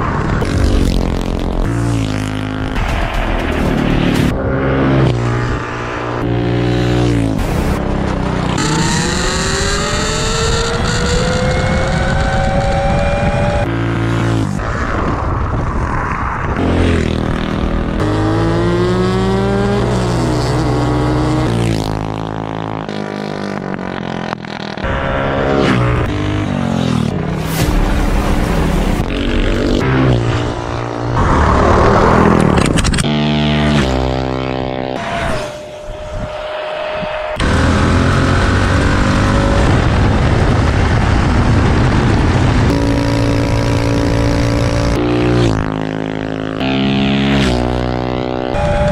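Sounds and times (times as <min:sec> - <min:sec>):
small gas engines revving: 0:05.0 - 0:14.7, 0:29.2 - 0:35.7, 0:37.4 - 0:48.9.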